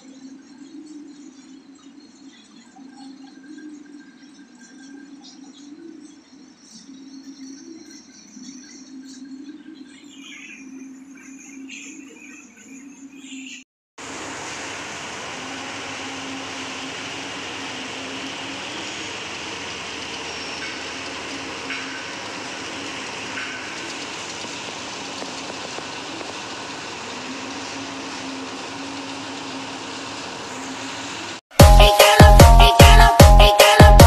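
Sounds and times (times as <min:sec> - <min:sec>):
concrete mixer truck running: 0:14.0 - 0:34.0.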